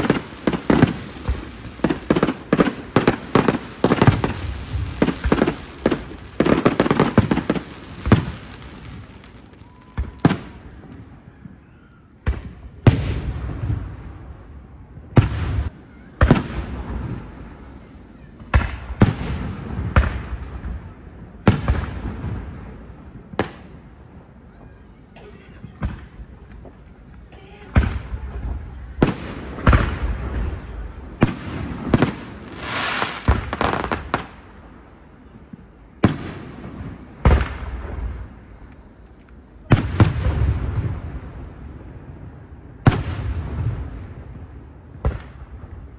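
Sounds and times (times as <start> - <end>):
fireworks crackle: 0.0 - 11.2, 25.9 - 34.8, 35.4 - 45.9
fireworks bangs with echo: 0.0 - 11.6, 12.2 - 24.8, 25.6 - 26.7, 27.7 - 45.9.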